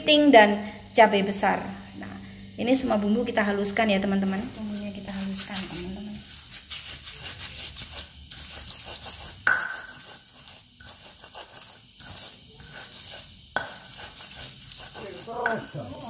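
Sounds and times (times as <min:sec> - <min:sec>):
stone pestle grinding in mortar: 0:04.3 - 0:16.0
sharp stone knocks with ring: 0:09.5 - 0:09.9.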